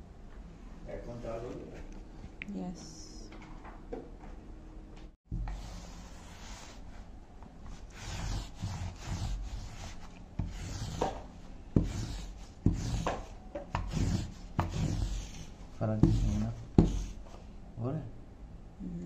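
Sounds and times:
lint roller rubbing on fabric: 0:05.5 - 0:07.1, 0:07.7 - 0:17.4.

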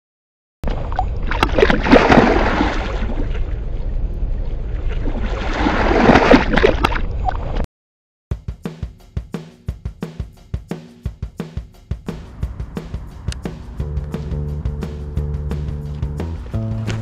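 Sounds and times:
fish splashing in shallow water: 0:00.6 - 0:07.6
drum music: 0:08.3 - 0:17.0.

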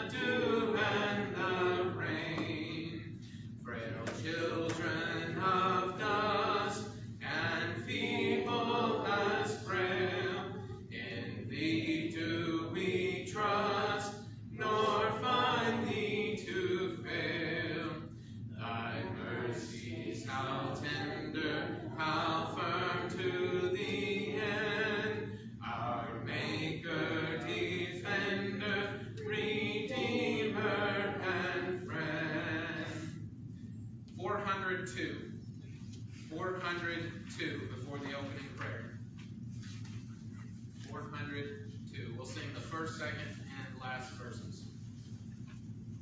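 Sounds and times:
congregation singing a hymn: 0:00.0 - 0:33.3
singers breathing: 0:03.2 - 0:03.6.

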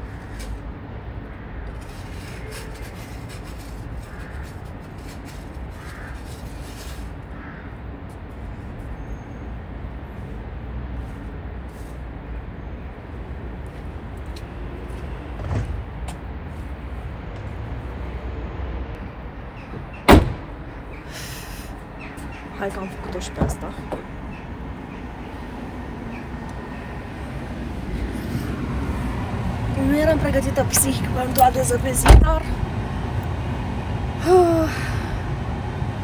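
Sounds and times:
scraper rasping on windscreen: 0:01.8 - 0:07.1.

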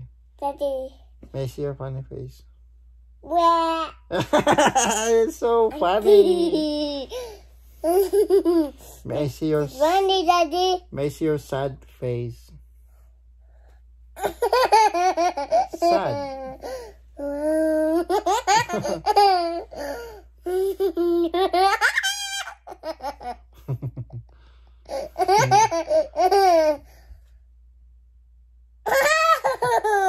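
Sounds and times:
girl laughing: 0:04.1 - 0:05.2, 0:05.8 - 0:08.8, 0:17.8 - 0:24.2, 0:24.9 - 0:26.8.

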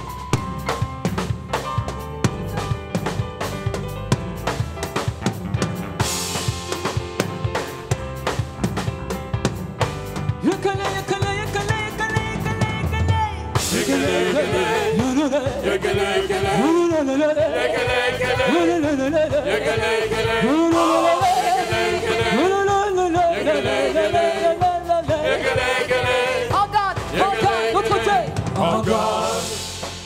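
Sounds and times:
drum kit hits: 0:00.0 - 0:30.0
live band playing: 0:00.0 - 0:30.0
voices singing over band: 0:13.6 - 0:29.9.

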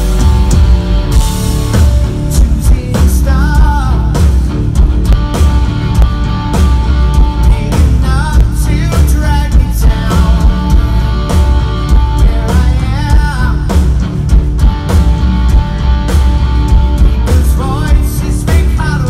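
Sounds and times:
bass guitar: 0:00.0 - 0:19.0
drum beat: 0:00.0 - 0:19.0
electric guitars: 0:00.0 - 0:19.0
man singing: 0:02.2 - 0:04.4, 0:07.1 - 0:14.0, 0:17.0 - 0:19.0.

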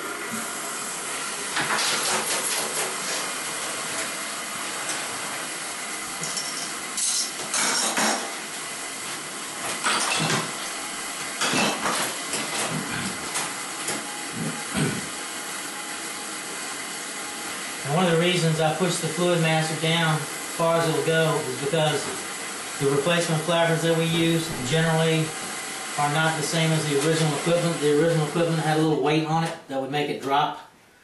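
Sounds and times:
toilet tank filling with water: 0:00.0 - 0:06.2.

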